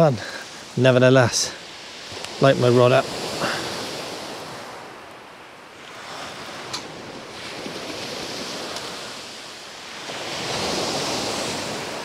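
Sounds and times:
waves washing on shingle: 5.8s - 12.0s.

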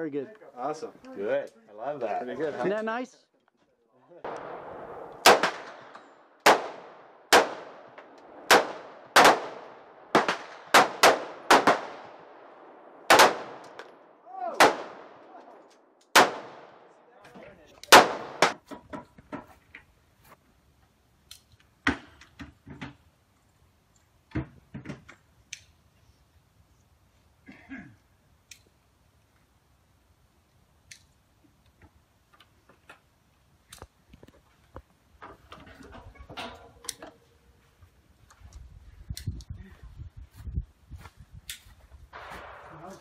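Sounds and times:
rifle shots echoing: 4.2s - 17.0s, 17.9s - 18.6s, 42.1s - 43.0s.

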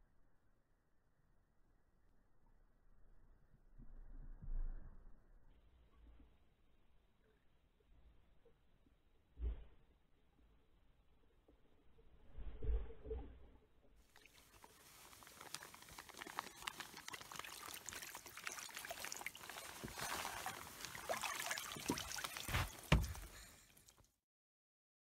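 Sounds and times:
slush sloshing in ice hole: 14.2s - 23.9s.

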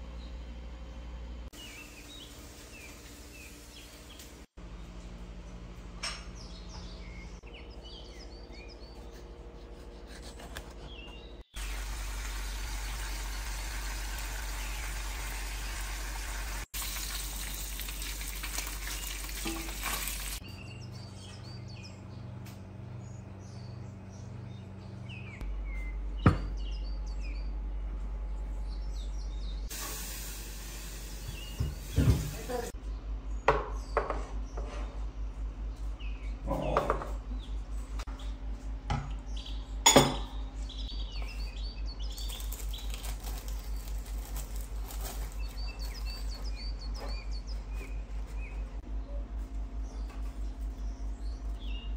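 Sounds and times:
bacon sizzling in a frying pan: 11.6s - 20.4s, 29.7s - 32.7s
birds chirping faintly: 30.6s - 51.9s
dishes clinking on wooden table: 39.8s - 40.4s.

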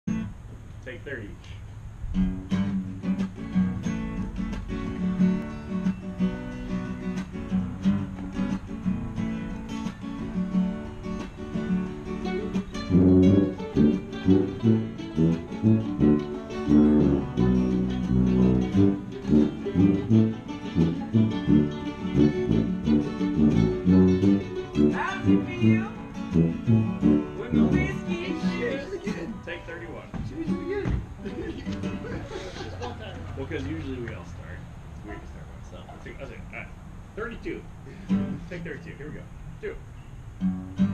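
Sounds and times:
acoustic guitar playing: 0.1s - 0.6s, 1.8s - 40.9s
small acoustic band: 1.4s - 40.9s
tuba bass notes: 12.2s - 29.2s.

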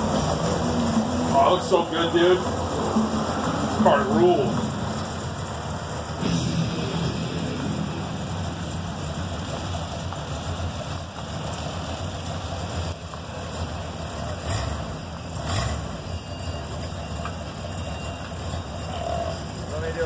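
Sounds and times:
car engine idling: 0.0s - 20.0s.

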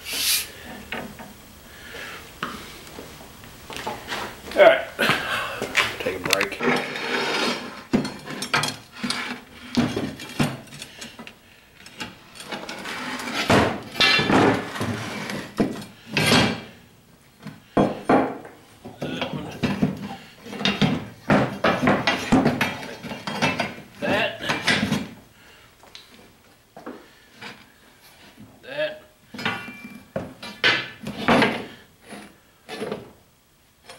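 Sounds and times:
metal scraping on wooden bench: 5.7s - 11.0s, 11.8s - 16.8s, 29.4s - 33.1s
steel leaf springs clanking: 29.4s - 31.6s.

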